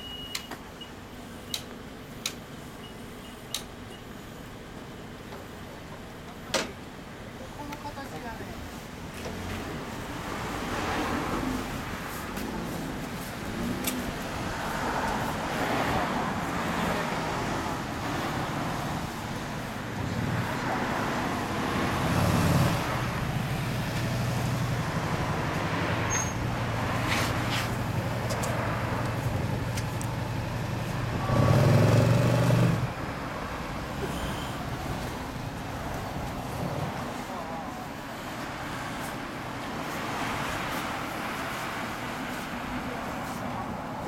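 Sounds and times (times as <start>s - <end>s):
vehicle engine humming: 0.6s - 44.0s.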